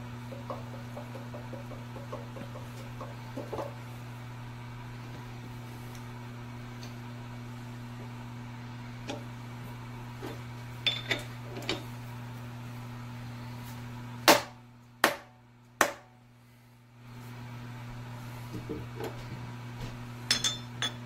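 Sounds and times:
low electrical hum: 0.0 - 21.0
sharp knocks on workpiece: 14.2 - 16.2.

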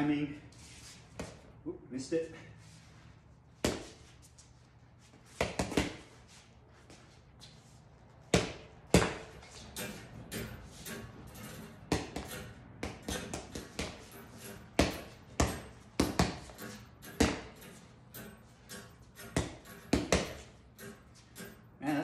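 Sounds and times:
boxing gloves smacking ball: 3.6 - 4.0, 5.4 - 6.1, 8.3 - 9.7, 11.9 - 17.7, 19.1 - 20.6.

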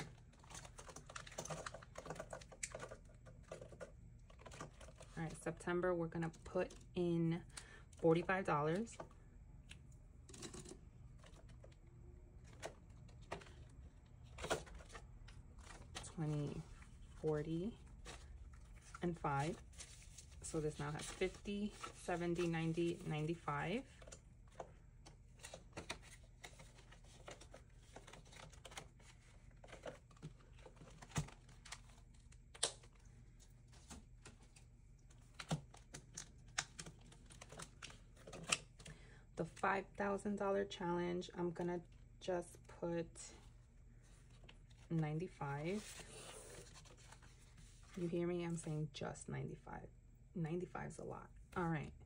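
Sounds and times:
binder pages rustling: 11.1 - 39.6, 43.3 - 48.2.

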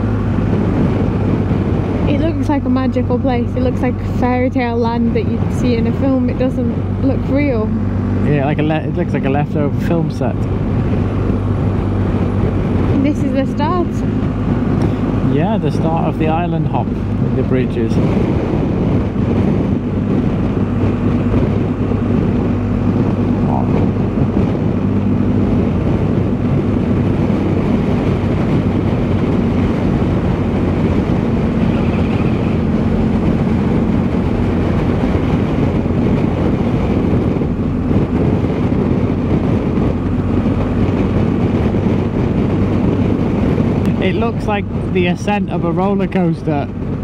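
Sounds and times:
motorcycle engine running: 0.0 - 47.0
wind rushing over microphone: 0.0 - 47.0.

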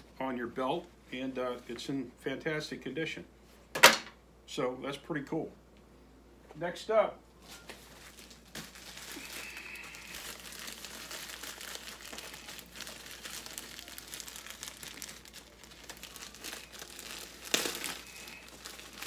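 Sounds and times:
plastic mailer crinkling: 7.5 - 19.0.

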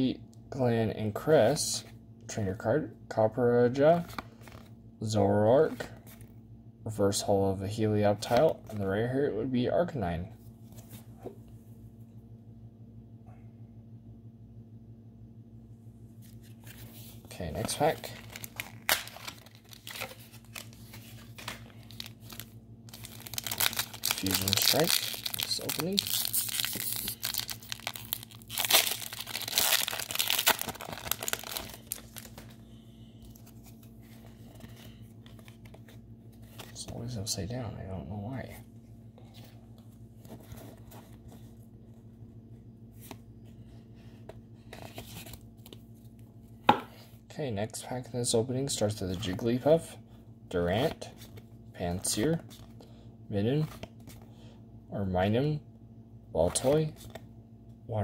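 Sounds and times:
cards being shuffled: 16.2 - 32.6, 33.2 - 37.0
foil wrapper crinkling: 17.5 - 32.5.

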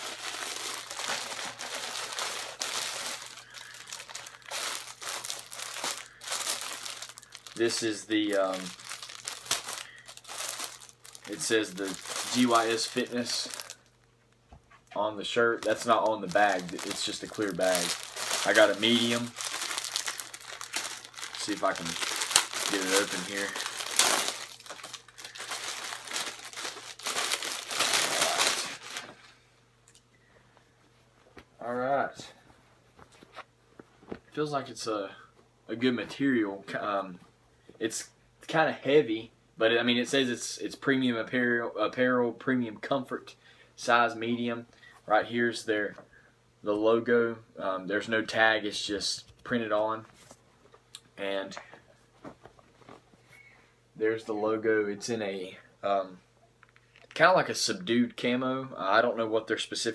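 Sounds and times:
plastic bag crinkling: 0.0 - 14.0, 15.5 - 29.3.

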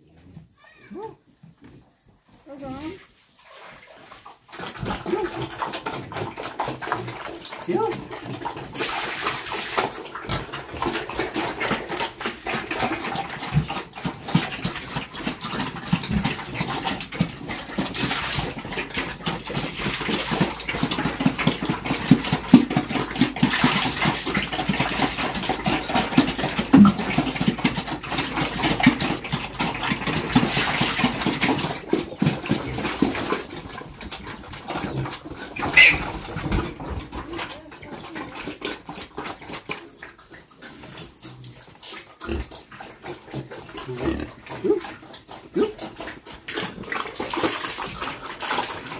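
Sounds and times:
high-pitched cry: 0.6 - 1.2
mash slurping and slopping: 2.6 - 48.9
pigs grunting: 4.5 - 9.0, 9.6 - 48.9.

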